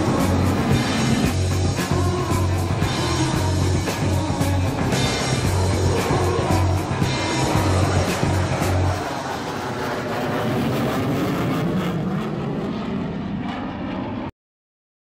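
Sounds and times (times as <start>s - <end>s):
music with heavy bass beat: 0.0s - 9.0s
fighter jet flying overhead: 0.0s - 14.3s.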